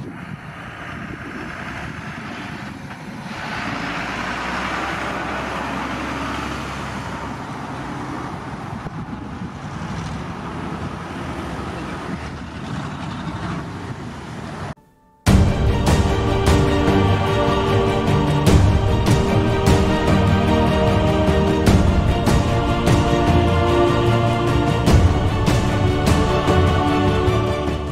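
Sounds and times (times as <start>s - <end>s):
jet engines roaring at takeoff: 0.0s - 5.4s, 7.0s - 14.8s.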